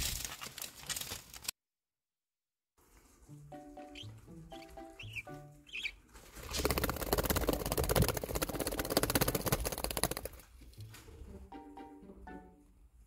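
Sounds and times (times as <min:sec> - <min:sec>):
soft background music: 0:02.8 - 0:09.9, 0:10.5 - 0:13.0
bird wings fluttering: 0:06.1 - 0:11.1.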